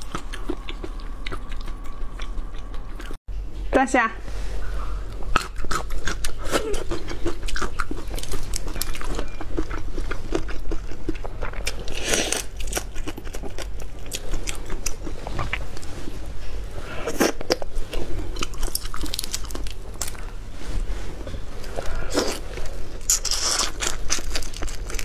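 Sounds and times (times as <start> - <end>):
wet chewing: 0.0 - 3.2, 5.2 - 15.9
crunching on shrimp shells: 5.3 - 15.8, 17.0 - 20.3, 22.1 - 25.0.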